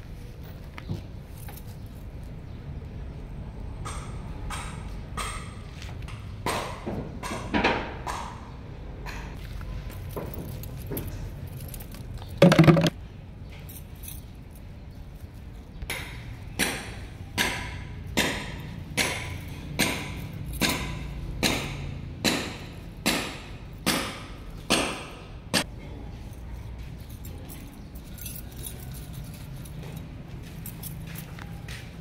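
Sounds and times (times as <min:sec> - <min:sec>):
metallic clinks: 0:09.9 - 0:15.7, 0:26.6 - 0:31.7.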